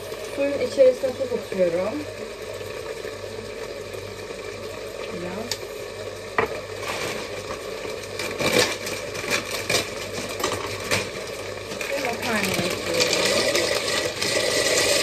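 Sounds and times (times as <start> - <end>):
plastic packet crinkling: 6.8 - 14.1.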